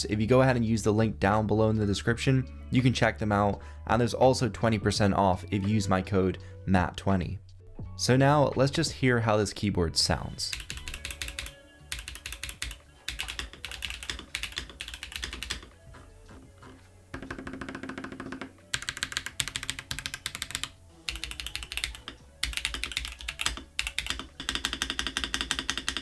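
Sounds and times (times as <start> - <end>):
mechanical keyboard typing: 10.5 - 15.7, 17.2 - 26.0.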